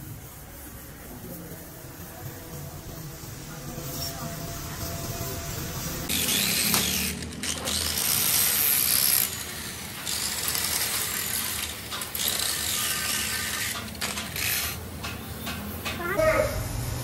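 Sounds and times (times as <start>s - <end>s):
angle grinder grinding metal: 2.8s - 14.9s.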